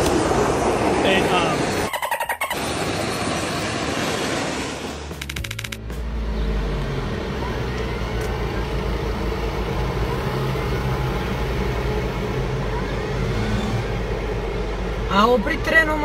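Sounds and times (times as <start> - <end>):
rapid ticking: 5.2 - 5.8.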